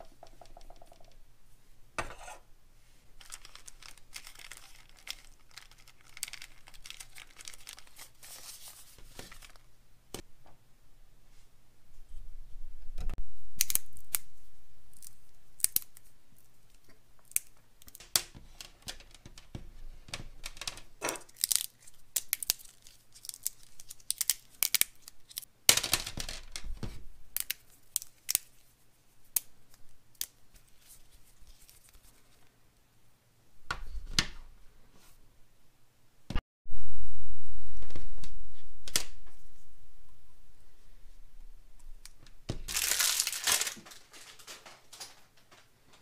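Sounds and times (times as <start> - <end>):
plastic rustling: 3.1 - 9.7, 41.9 - 46.0.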